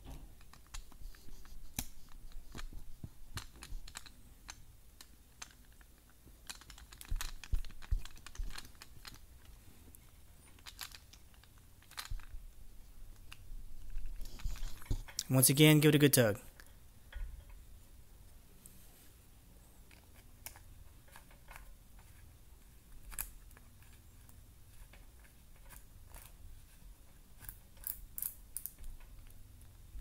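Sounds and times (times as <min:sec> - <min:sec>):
small clicks and ticks: 0:00.0 - 0:12.4, 0:23.0 - 0:26.4, 0:27.4 - 0:29.8.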